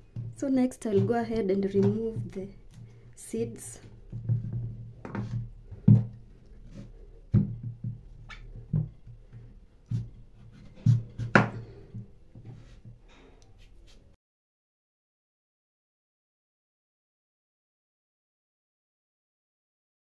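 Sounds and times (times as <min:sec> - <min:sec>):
knife knocking on cutting board: 0:10.9 - 0:11.6.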